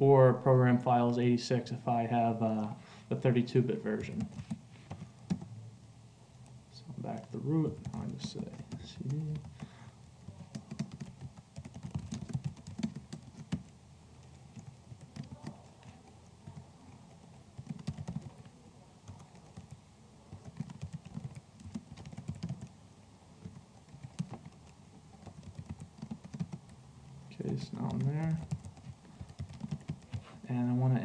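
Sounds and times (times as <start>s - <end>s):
typing on computer keyboard: 4.0s - 5.5s, 7.7s - 9.6s, 10.2s - 16.6s, 17.2s - 18.5s, 19.1s - 22.8s, 23.4s - 26.7s, 27.4s - 30.2s.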